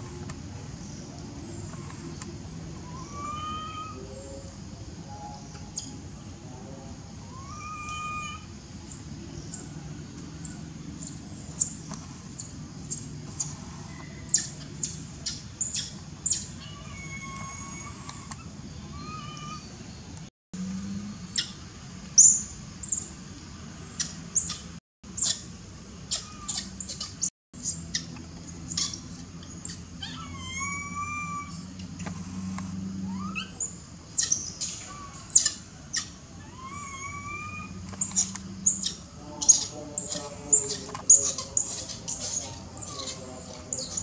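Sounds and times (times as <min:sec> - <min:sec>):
monkey whistled coo calls: 0:02.8 - 0:04.5, 0:07.2 - 0:08.5, 0:33.0 - 0:44.0
monkey wavering cry: 0:02.8 - 0:04.6, 0:07.1 - 0:11.2, 0:12.8 - 0:19.8, 0:25.2 - 0:31.7, 0:33.0 - 0:44.0
monkeys squeaking: 0:12.4 - 0:19.7, 0:24.0 - 0:25.5, 0:26.1 - 0:31.6, 0:33.0 - 0:44.0.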